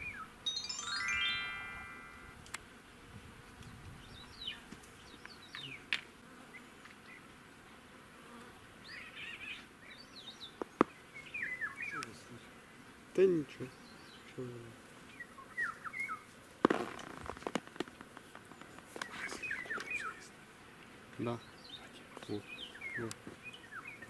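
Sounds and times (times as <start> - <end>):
insects buzzing: 0.0 - 24.0
short chirps: 0.5 - 2.4.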